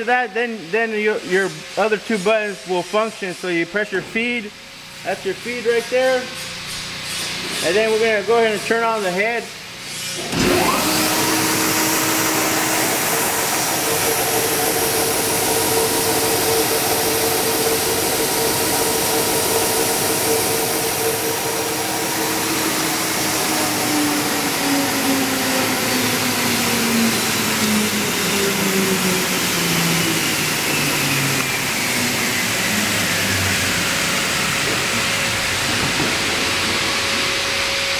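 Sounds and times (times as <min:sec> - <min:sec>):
belt sander whirring and humming: 0:09.6 - 0:37.9
falling hum tone: 0:10.6 - 0:37.9.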